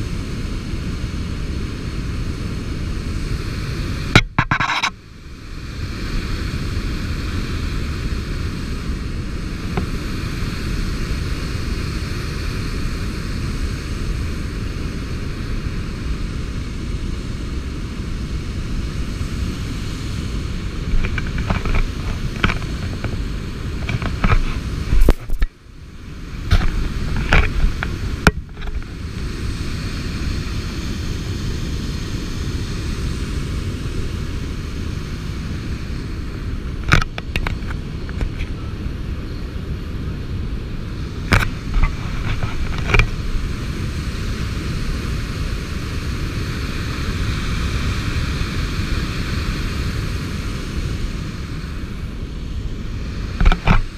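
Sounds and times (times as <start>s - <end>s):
wind: 0.0s - 53.9s
sharp knocks: 4.2s - 4.9s.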